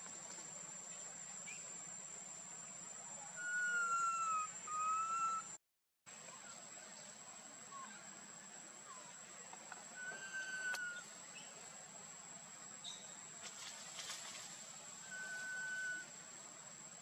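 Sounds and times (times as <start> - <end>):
whistled call: 3.2 - 5.6, 9.9 - 11.0, 15.0 - 16.1.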